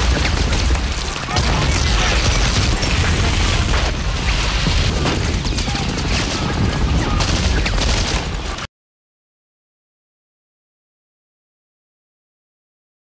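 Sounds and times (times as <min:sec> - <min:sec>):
rapid crackling bangs: 0:00.0 - 0:08.7.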